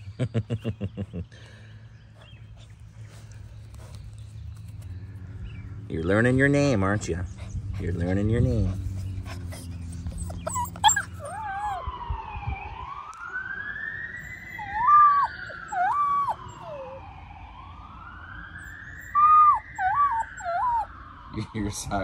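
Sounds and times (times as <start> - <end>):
distant siren wailing: 2.5 - 22.0
puppy howling: 7.9 - 11.9, 14.2 - 17.0, 19.0 - 20.9.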